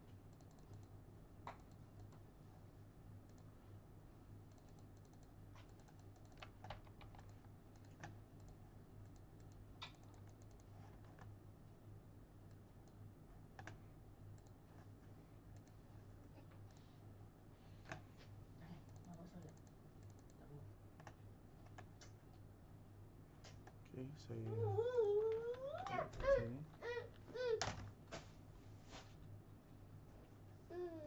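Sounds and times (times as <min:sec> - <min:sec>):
low steady hum: 0:00.0 - 0:31.0
keyboard and mouse clicks: 0:00.3 - 0:02.2, 0:04.5 - 0:11.3, 0:13.6 - 0:13.8, 0:14.4 - 0:14.6, 0:15.5 - 0:15.8, 0:18.8 - 0:20.4, 0:21.0 - 0:22.2.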